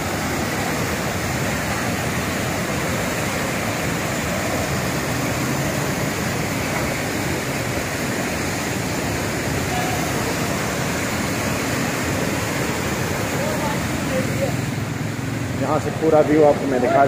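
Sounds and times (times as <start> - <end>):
river rushing over a weir: 0.0 - 17.0.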